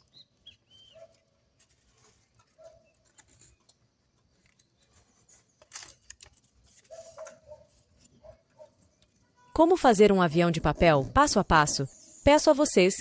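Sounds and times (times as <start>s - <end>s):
paper crinkle: 0.0s - 9.3s
paper rustling and scraping: 1.0s - 8.4s.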